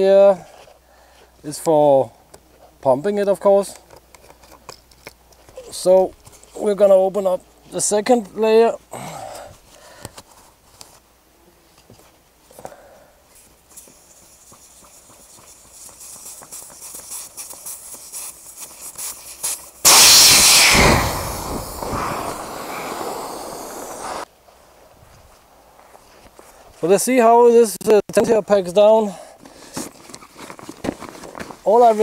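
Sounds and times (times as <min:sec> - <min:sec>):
air hissing from a valve: 0:19.8 - 0:24.3.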